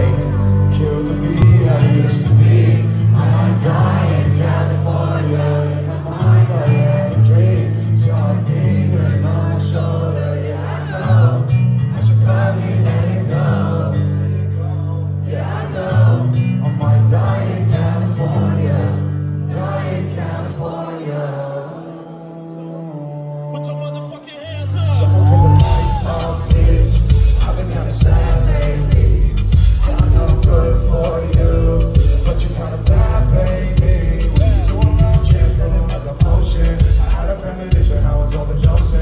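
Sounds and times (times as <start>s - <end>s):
bass-heavy synth backing: 0.0s - 10.3s, 24.6s - 39.0s
male singer through pa: 0.0s - 14.4s, 15.2s - 39.0s.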